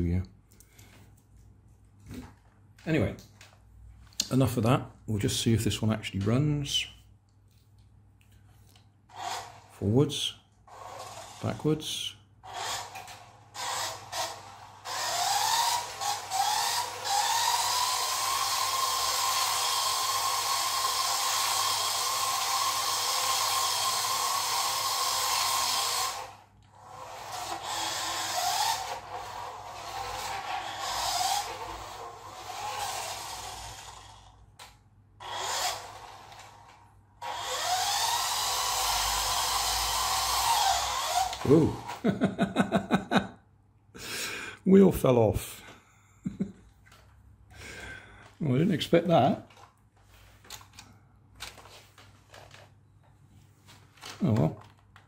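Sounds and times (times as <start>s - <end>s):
toy car motor whining: 9.1s - 42.1s.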